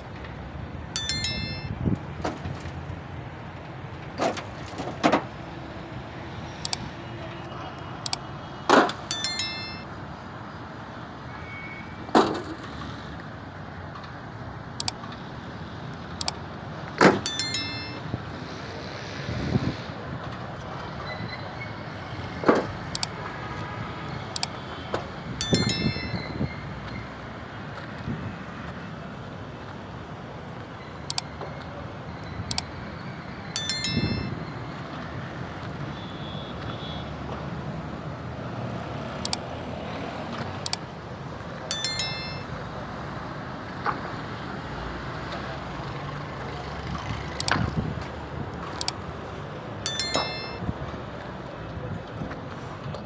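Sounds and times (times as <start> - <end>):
traffic: 0.0 - 53.0
wind: 0.0 - 53.0
bright ringing chime: 1.0 - 1.8, 9.1 - 9.8, 17.3 - 18.0, 25.4 - 26.4, 33.6 - 34.4, 41.7 - 42.5, 49.9 - 50.6
sharp click: 6.6 - 6.8.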